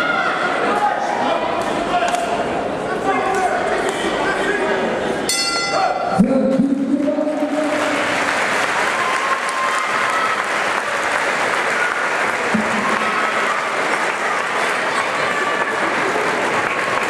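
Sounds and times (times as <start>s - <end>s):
crowd applauding: 7.4s - 17.0s.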